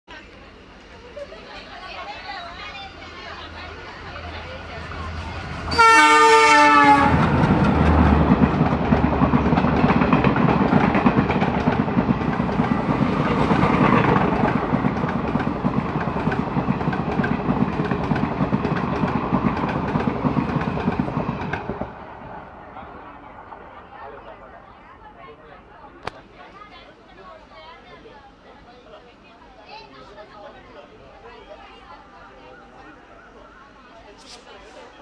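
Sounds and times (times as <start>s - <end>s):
locomotive engine: 0.3s - 26.6s
locomotive horn: 5.6s - 7.4s.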